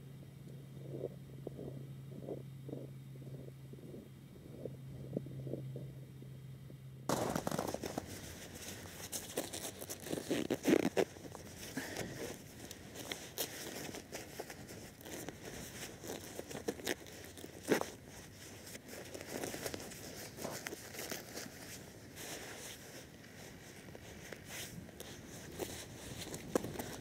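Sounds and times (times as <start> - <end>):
faint low hum: 0.0 - 27.0
loud crackles: 7.1 - 10.8
clothing rustling and snow crunching: 7.1 - 27.0.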